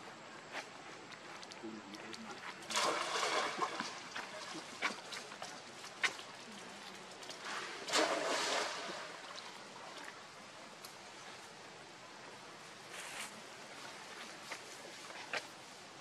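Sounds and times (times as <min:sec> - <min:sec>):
water sloshing and splashing: 0:01.4 - 0:11.0.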